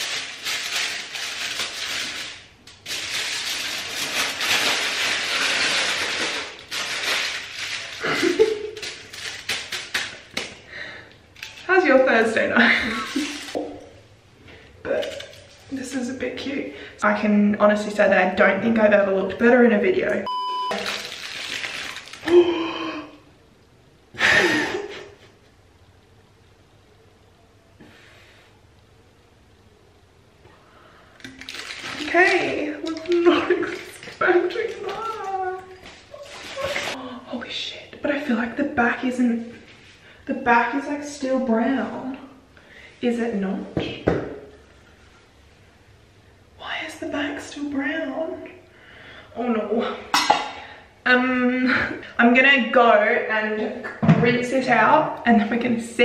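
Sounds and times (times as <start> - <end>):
aluminium foil crinkling: 0.0 - 10.6, 11.3 - 13.6, 14.9 - 16.2, 20.7 - 22.6, 31.2 - 37.0
test-pattern beep: 20.3 - 20.8
woman vocal sounds: 22.2 - 23.3, 31.9 - 38.2.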